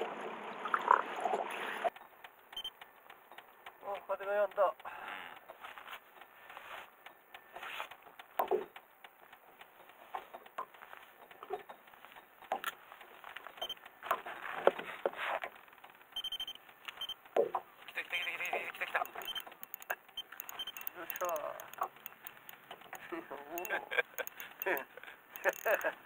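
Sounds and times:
faint knocks and clicks: 1.9s - 26.0s
rustling: 5.5s - 26.0s.

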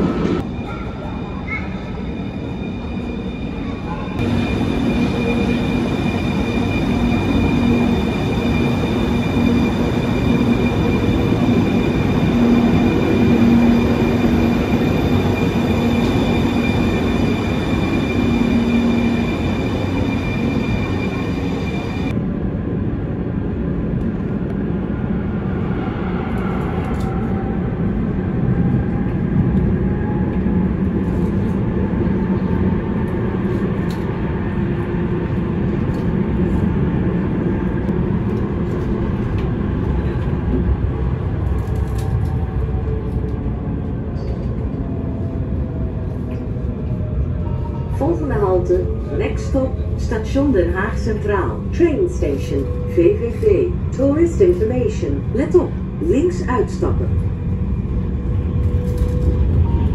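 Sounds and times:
tram rumble: 0.0s - 59.9s.

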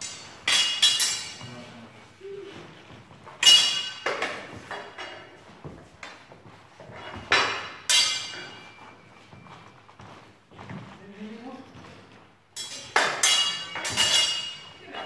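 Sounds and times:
steel swords clashing: 0.0s - 1.5s, 3.4s - 4.5s, 7.3s - 8.8s, 12.6s - 15.0s.

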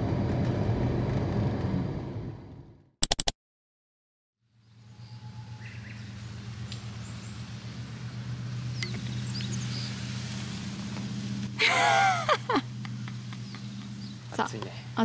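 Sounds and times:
steady low hum: 4.6s - 15.0s.

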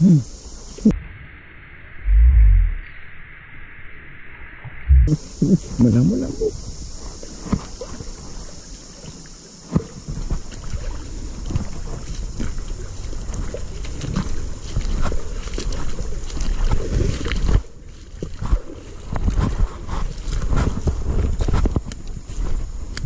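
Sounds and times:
wind noise: 4.7s - 8.7s, 9.7s - 23.0s.

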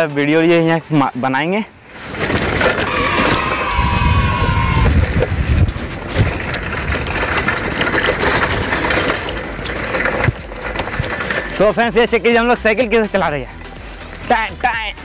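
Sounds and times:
bicycle frame rattling: 0.6s - 15.0s
wind rumbling on microphone: 1.8s - 11.8s
bicycle tyres crunching on dirt: 1.8s - 14.7s.

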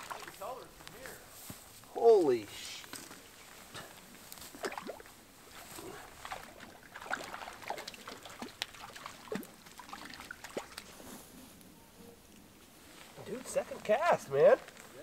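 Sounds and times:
water splashes and drips: 0.0s - 1.0s, 2.7s - 11.0s.

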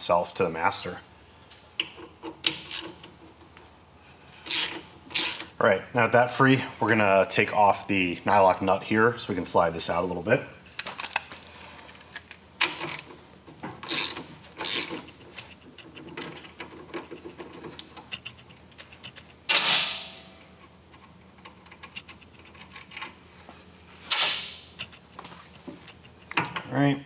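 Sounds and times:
ratchet and wrench clicking: 4.5s - 5.5s, 13.8s - 19.3s.

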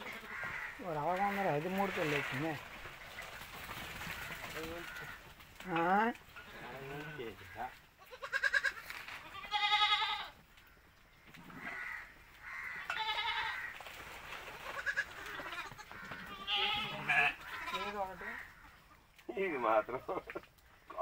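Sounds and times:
goat kids bleating: 6.4s - 10.4s, 11.4s - 13.8s, 14.6s - 18.8s.

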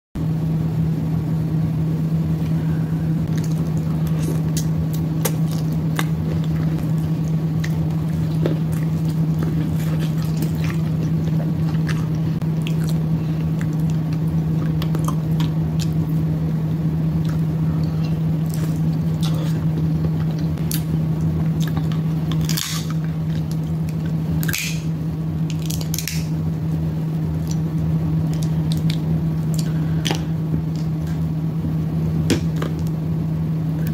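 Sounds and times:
steady low hum: 0.2s - 33.9s
close-mic wet chewing: 3.3s - 16.2s, 17.2s - 24.2s.

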